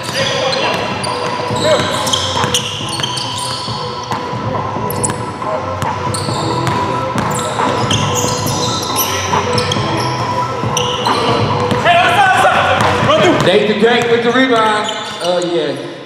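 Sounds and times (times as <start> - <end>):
basketball bouncing: 0.0 - 8.6, 10.8 - 11.9
sneakers squeaking on court: 0.0 - 11.9, 12.7 - 16.0.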